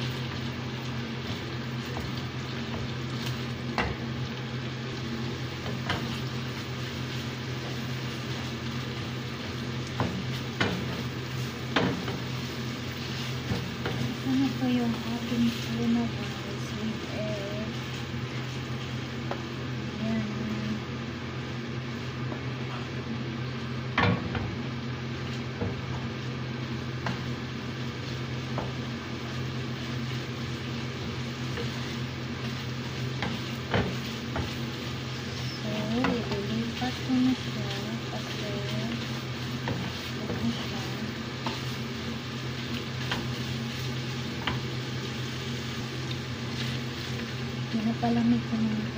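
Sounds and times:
food sizzling in a pan: 0:00.0 - 0:48.9
low steady hum: 0:00.0 - 0:48.9
spatula scraping and knocking pan: 0:05.6 - 0:16.7, 0:25.2 - 0:47.4
spatula knocking against pan: 0:33.2 - 0:34.6.

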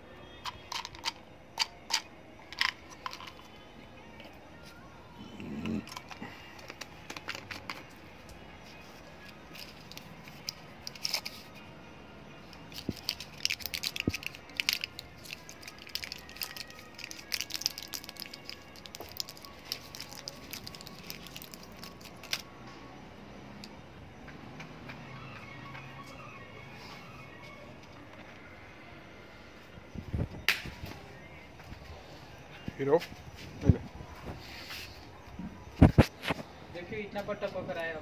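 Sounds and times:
packaging crinkling: 0:12.7 - 0:22.5.

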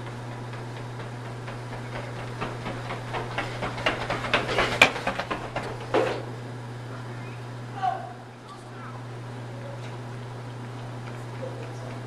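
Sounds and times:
running footsteps on tiled floor: 0:00.0 - 0:06.6, 0:09.1 - 0:12.0.

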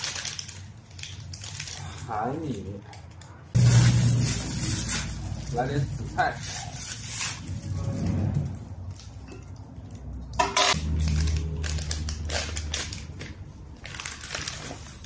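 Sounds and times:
food packaging rustling: 0:00.0 - 0:02.7, 0:10.8 - 0:15.0
low rumble: 0:03.6 - 0:06.2, 0:06.8 - 0:09.1, 0:09.8 - 0:13.1.

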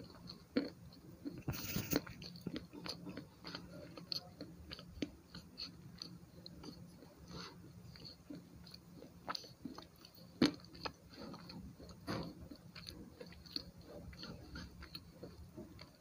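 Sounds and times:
pencil crunching between teeth: 0:01.3 - 0:04.1.

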